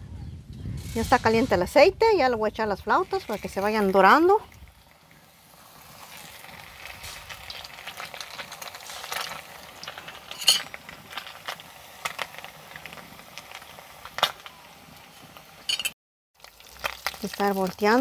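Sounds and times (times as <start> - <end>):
food deep-frying in hot oil: 1.0 - 18.0.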